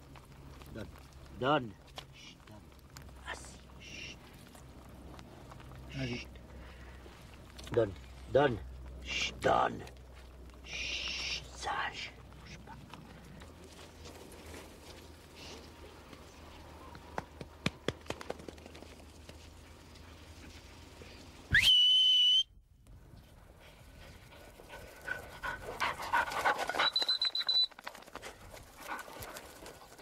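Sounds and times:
dog whistle blasts: 0:21.5 - 0:22.5
dog panting: 0:23.6 - 0:27.2, 0:28.1 - 0:30.0.

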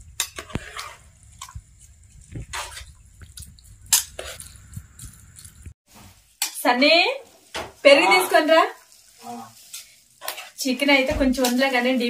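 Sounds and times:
rice squishing: 0:00.0 - 0:06.4.

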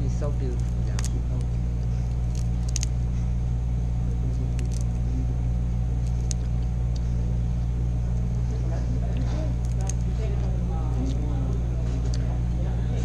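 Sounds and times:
steady low hum: 0:00.0 - 0:13.0
shells cracking as peeled: 0:00.5 - 0:03.4, 0:04.0 - 0:07.2, 0:09.1 - 0:12.5.

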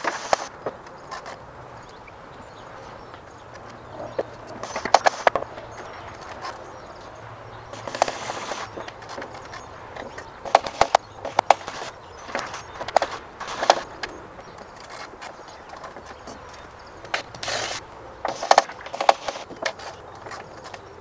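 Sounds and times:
brief hissing rush: 0:07.8 - 0:08.9.

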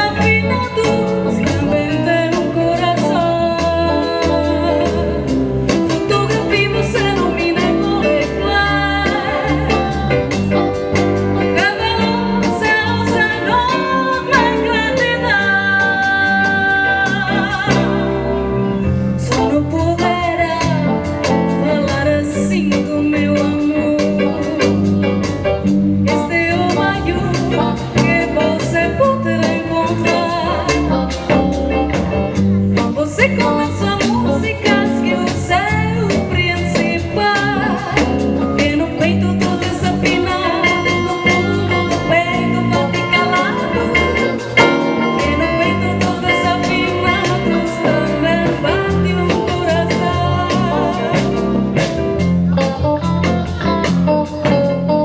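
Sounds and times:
woman singing into microphone: 0:00.0 - 0:32.0, 0:32.7 - 0:55.0
live band music: 0:00.0 - 0:55.0.

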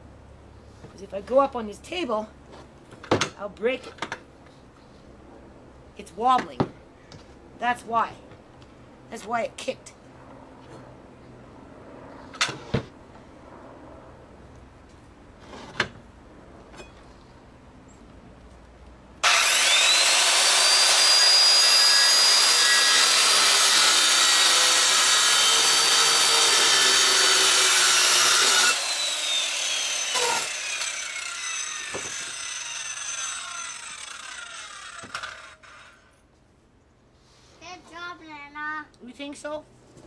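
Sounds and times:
circular saw cutting wood: 0:19.2 - 0:36.1.

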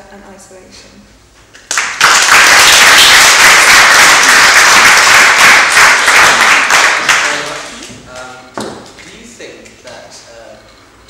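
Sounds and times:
audience applauding: 0:01.7 - 0:07.8.

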